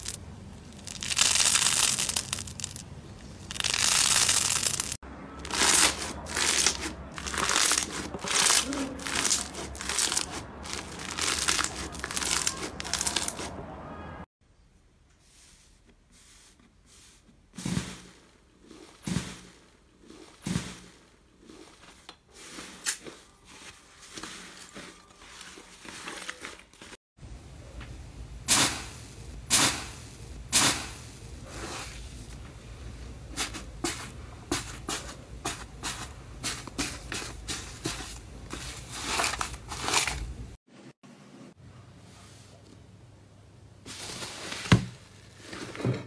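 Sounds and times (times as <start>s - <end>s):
crusted slime crackling and popping: 0.0s - 13.4s
slime squishing: 0.0s - 13.6s.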